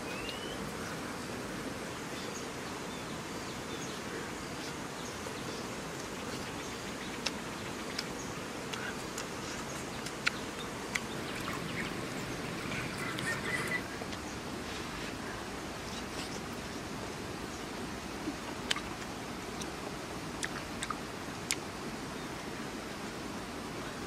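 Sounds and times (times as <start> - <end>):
faint bird chirps: 0.0 - 1.0, 2.1 - 14.4
even outdoor hiss: 0.0 - 24.0.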